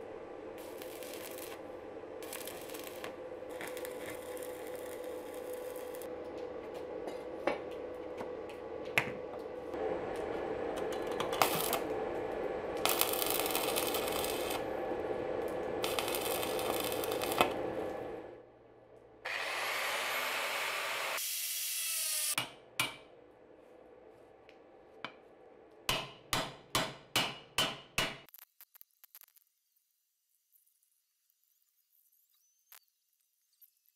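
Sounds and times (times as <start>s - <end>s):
welding arc crackling and hissing: 0.0s - 6.1s, 11.0s - 18.2s, 28.2s - 32.8s
steady hum: 0.0s - 19.3s.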